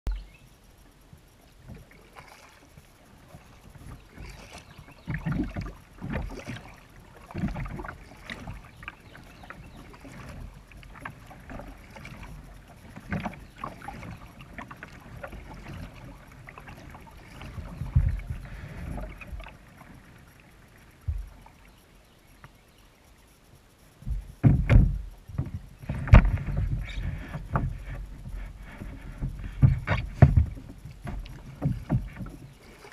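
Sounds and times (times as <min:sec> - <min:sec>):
paddle strokes in water: 0:00.1 - 0:32.9
water splashes: 0:01.5 - 0:21.9, 0:24.0 - 0:32.9
dull thumps on plastic hull: 0:24.0 - 0:32.5.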